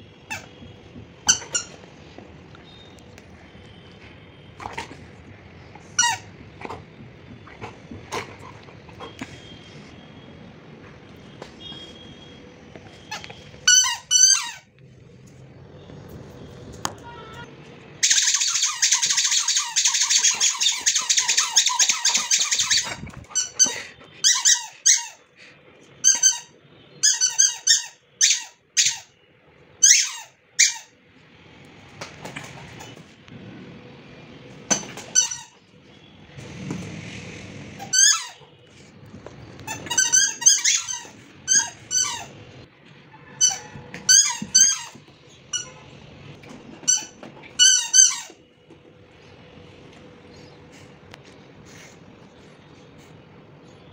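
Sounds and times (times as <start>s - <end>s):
squeaky dog toy squeaking: 1.2s - 1.8s, 6.0s - 6.3s, 13.1s - 14.7s, 18.0s - 25.2s, 26.0s - 29.2s, 29.8s - 31.0s, 34.7s - 35.6s, 37.8s - 38.4s, 39.7s - 42.4s, 43.4s - 45.8s, 46.8s - 48.4s.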